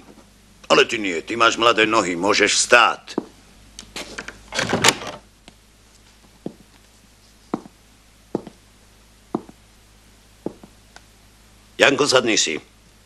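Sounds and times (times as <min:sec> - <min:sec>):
boots on a wooden floor: 0:06.3 - 0:06.7, 0:07.5 - 0:08.6, 0:09.3 - 0:09.6, 0:10.4 - 0:10.8.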